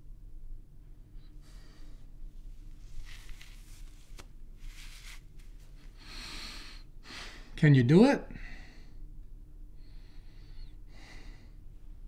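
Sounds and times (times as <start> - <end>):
wig rustling: 2.6 - 5.8.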